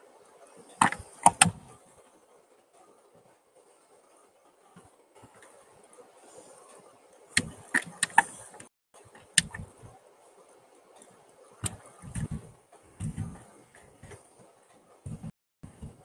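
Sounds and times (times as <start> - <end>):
sharp clicks: 0.8 - 1.6, 7.4 - 9.7
low thuds: 11.6 - 14.2, 15.0 - 16.0.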